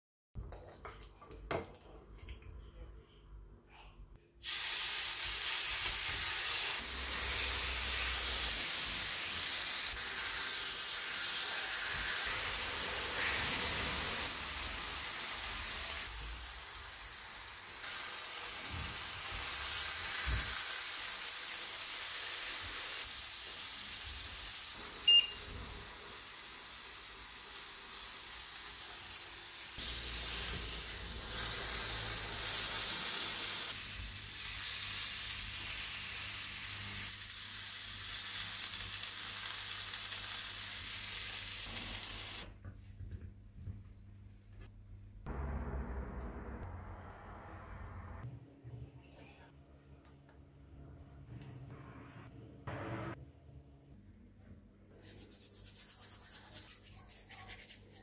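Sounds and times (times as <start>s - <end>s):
chicken sizzling on grill pan: 4.4s - 42.4s
short beep: 25.1s - 25.4s.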